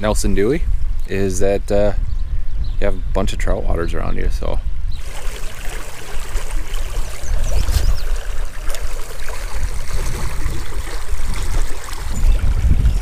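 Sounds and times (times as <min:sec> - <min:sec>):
stream rippling over riffles: 0:05.0 - 0:13.0.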